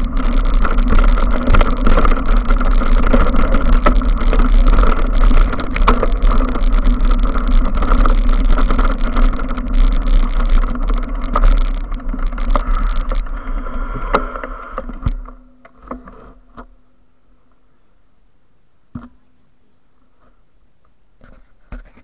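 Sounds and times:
bike rattling clicks: 0.0 - 13.5
bike tyres rumbling on dirt: 0.0 - 16.5.

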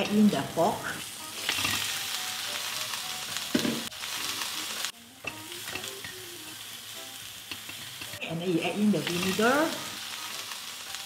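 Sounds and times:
meat sizzling in oil: 0.0 - 11.0.

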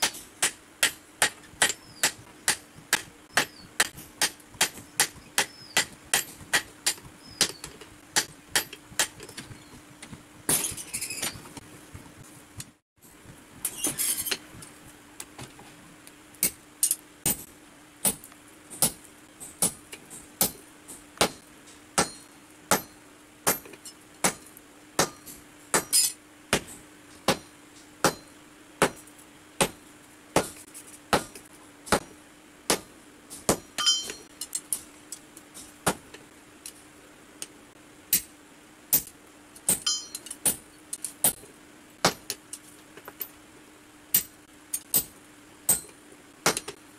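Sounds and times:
hammer striking steel on anvil: 0.0 - 9.4, 21.2 - 26.7, 27.3 - 29.0, 33.5 - 34.6, 39.7 - 40.6, 45.7 - 45.9.

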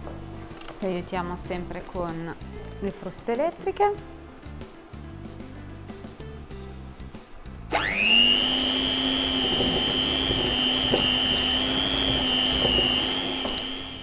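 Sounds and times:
electric hand mixer whine: 7.7 - 14.0.

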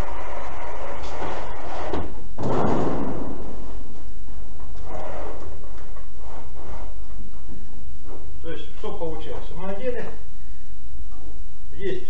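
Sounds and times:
metal rolling and scraping: 0.0 - 9.5
steady low hum: 0.0 - 12.0.

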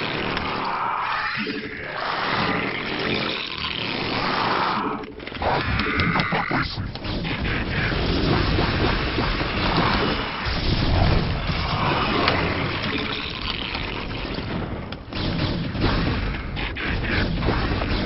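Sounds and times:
video game explosions: 5.4 - 18.0
video game weapon fire: 15.1 - 18.0.

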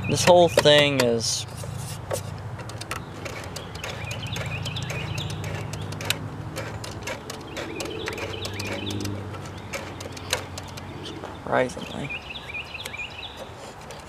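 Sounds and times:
metal chassis clicks and knocks: 0.0 - 1.4, 2.1 - 10.9
birds chirping: 0.0 - 14.0.

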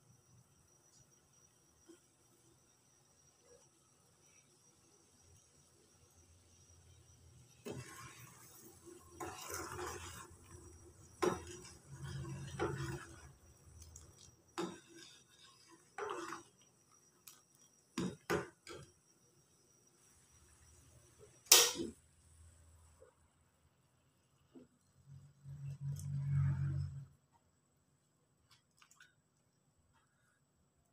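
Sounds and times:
metal ladle scraping saucepan: 7.6 - 16.6.

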